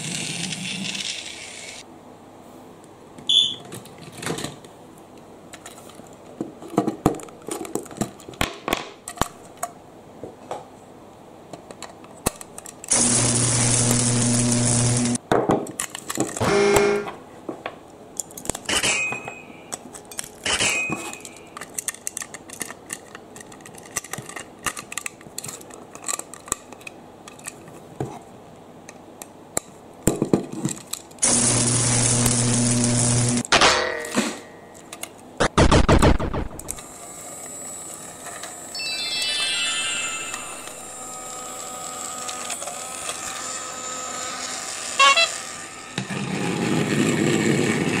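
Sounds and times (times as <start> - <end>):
toy electric motor whirring: 0.0 - 1.8, 39.0 - 46.1
plastic clicks and scrapes: 21.1 - 27.8
short loud chirp: 38.8 - 41.2.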